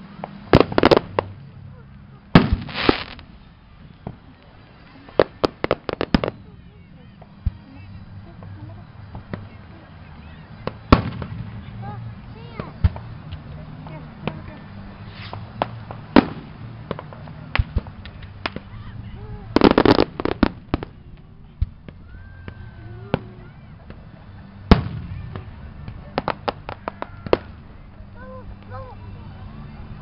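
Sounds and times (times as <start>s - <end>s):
crackling firework volley: 0.0s - 30.0s
firework pops: 0.2s - 1.3s, 2.4s - 3.3s, 5.1s - 6.4s, 10.6s - 11.5s, 15.1s - 18.7s, 19.6s - 24.0s, 24.7s - 27.6s
firework bangs: 0.2s - 1.4s, 2.3s - 6.5s, 10.5s - 13.2s, 13.8s - 27.7s
loud firework boom: 2.3s - 3.2s, 10.6s - 11.6s, 24.7s - 25.5s.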